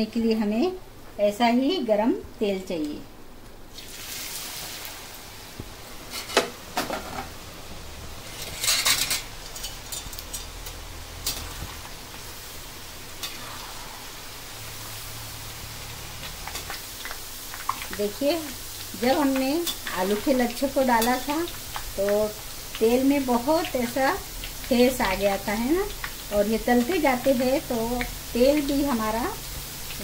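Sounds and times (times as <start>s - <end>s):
potatoes sizzling in hot oil: 3.7s - 30.0s.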